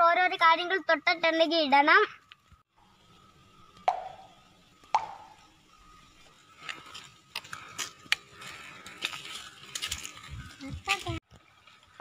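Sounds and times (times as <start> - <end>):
crackling and rustling: 6.2 - 12.0.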